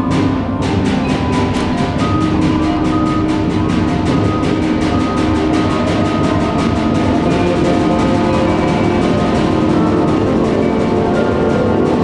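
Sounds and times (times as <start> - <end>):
brass and woodwind chords: 0.0 - 12.0
fast percussion pulse: 0.0 - 12.0.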